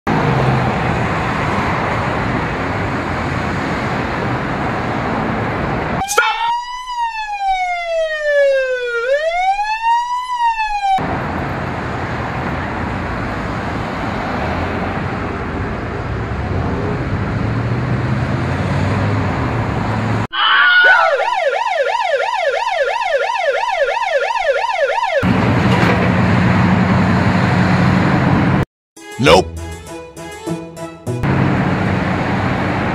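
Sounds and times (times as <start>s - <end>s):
cars passing: 0.1s - 6.0s, 11.0s - 20.3s, 31.2s - 32.9s
ambulance siren fast warble: 6.0s - 11.0s, 20.3s - 25.3s
slow siren wail: 6.0s - 11.2s, 20.3s - 25.3s.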